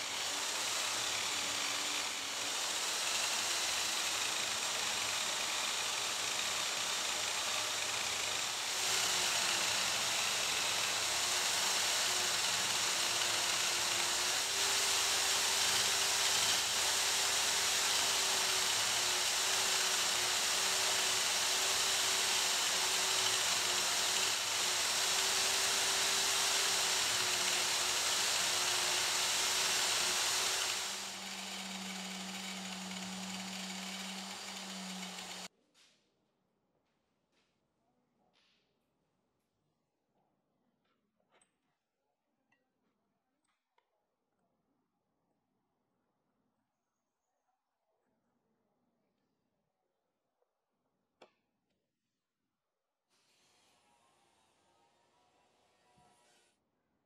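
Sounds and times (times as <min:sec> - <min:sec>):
bench buffer motor whirring: 0:00.0 - 0:35.5.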